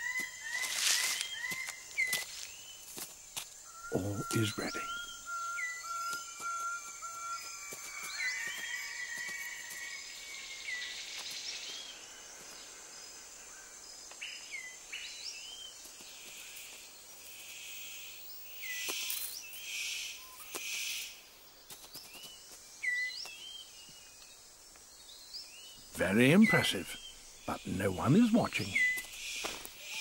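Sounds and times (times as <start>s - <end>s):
insects droning: 0.0s - 30.0s
bird chirps: 3.6s - 12.0s, 25.0s - 30.0s.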